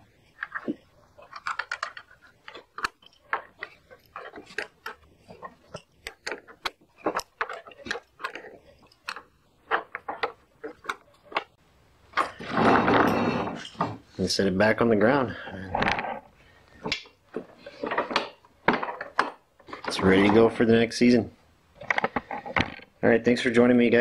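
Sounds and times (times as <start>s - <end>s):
metal clicks and knocks: 0.2s - 14.0s, 15.8s - 20.6s.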